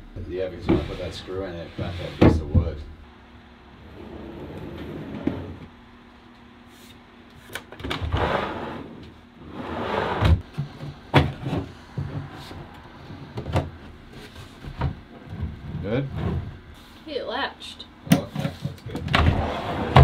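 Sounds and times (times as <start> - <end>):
drawer slides rushing: 8.0 - 10.4, 19.1 - 20.0.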